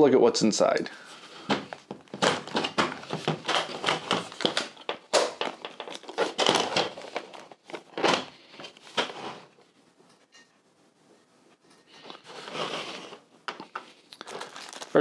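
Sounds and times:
plastic latches clicking and snapping: 0:02.0 - 0:07.1.

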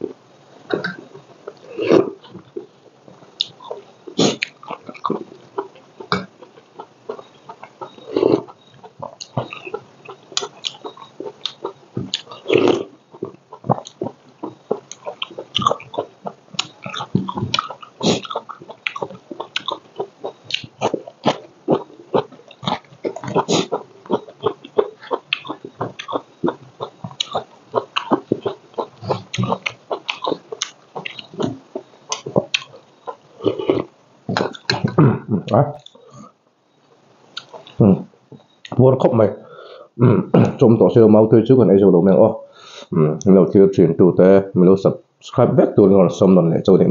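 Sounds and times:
chewing with lip smacks: 0:00.7 - 0:35.0, 0:37.3 - 0:38.8.

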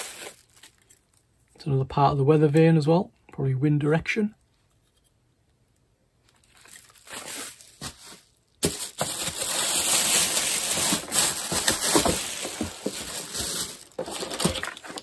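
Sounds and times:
plastic packaging crinkling: 0:00.0 - 0:01.2, 0:06.3 - 0:15.0.

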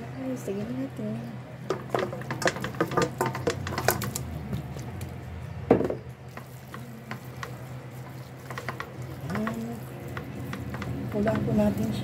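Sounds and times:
basin knocking against pot: 0:01.7 - 0:04.2, 0:05.7 - 0:06.1.

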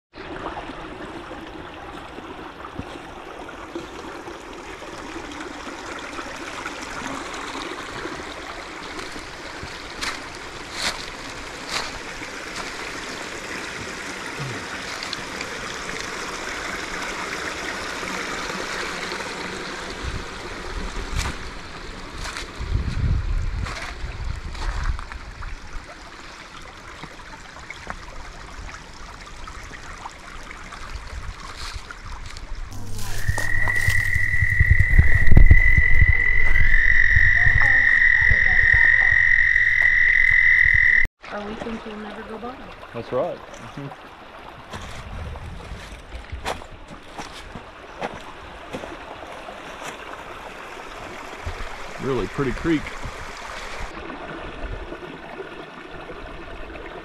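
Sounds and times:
creek water over rocks: 0:00.1 - 0:57.0.

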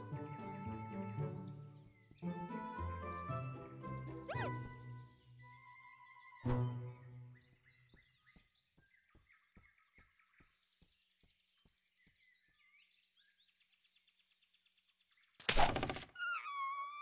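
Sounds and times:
faint bird chirps: 0:04.3 - 0:17.0.

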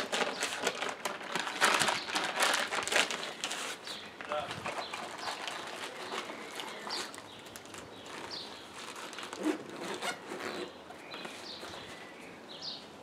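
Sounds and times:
gear rustling in fabric backpack: 0:04.6 - 0:12.1.

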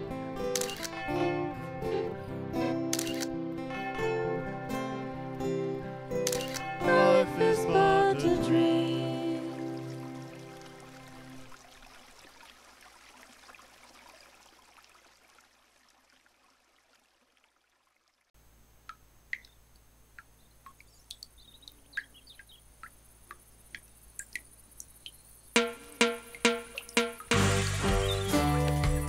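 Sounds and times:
children's music: 0:06.8 - 0:09.7, 0:25.6 - 0:29.0
low steady hiss: 0:18.4 - 0:28.9
bird chirps: 0:20.4 - 0:22.7, 0:27.9 - 0:28.7.

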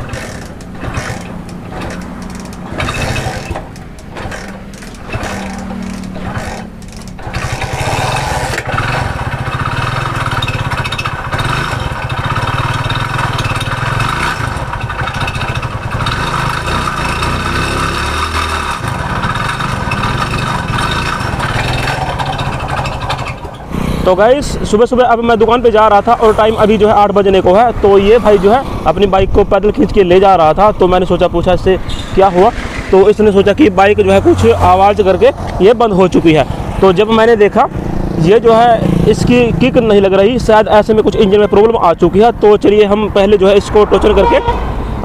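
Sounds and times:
engine internal knocking noise: 0:00.0 - 0:24.1
motorcycle being kick-started: 0:00.0 - 0:24.2
motorcycle engine running: 0:00.0 - 0:28.8, 0:32.4 - 0:41.6.

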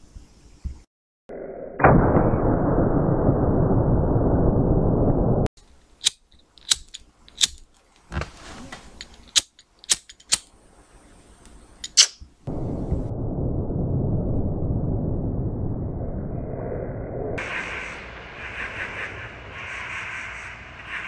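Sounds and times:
slowed rifle shot roar: 0:01.6 - 0:05.5.

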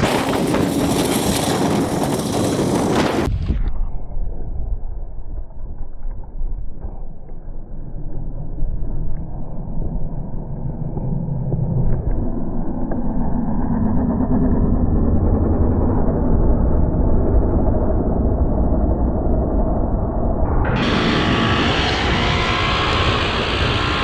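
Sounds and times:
vehicle engine under load: 0:20.5 - 0:24.0.

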